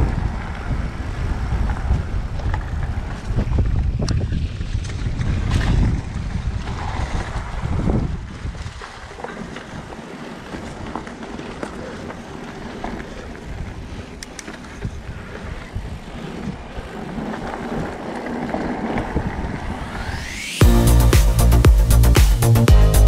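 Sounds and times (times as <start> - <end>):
wind on microphone: 0.0 - 20.9
rising whoosh: 19.0 - 23.0
electronic dance music: 19.8 - 23.0.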